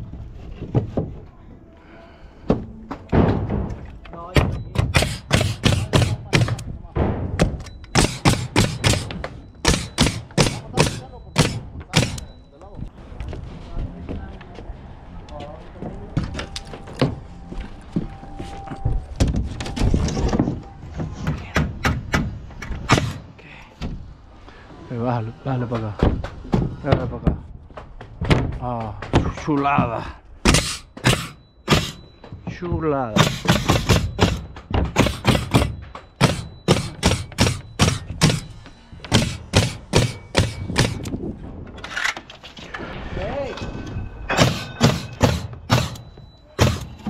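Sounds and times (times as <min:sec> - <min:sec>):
nail gun firing into plywood: 0:04.8 - 0:06.6, 0:07.4 - 0:12.2, 0:22.8 - 0:23.2, 0:30.5 - 0:32.0, 0:33.1 - 0:38.5, 0:39.1 - 0:41.1, 0:44.4 - 0:47.0.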